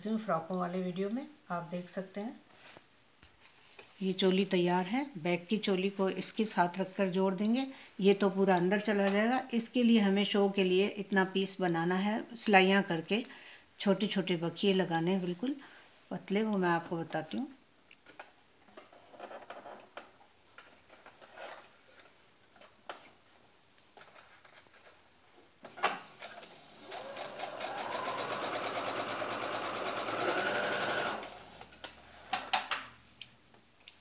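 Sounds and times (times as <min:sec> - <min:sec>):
sewing machine running: 0:26.8 - 0:31.6.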